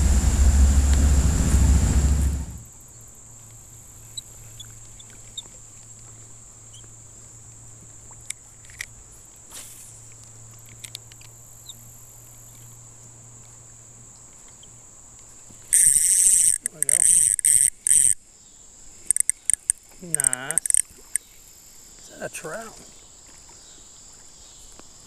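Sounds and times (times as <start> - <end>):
loud rush of noise: 0.0 - 2.7
faint low hum: 0.0 - 4.0
insects buzzing: 0.0 - 5.4, 8.5 - 25.0.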